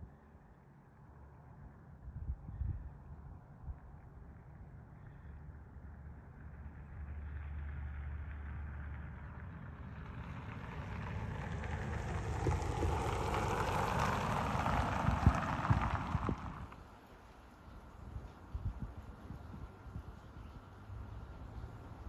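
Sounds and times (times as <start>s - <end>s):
low rumble: 10.7s - 16.8s.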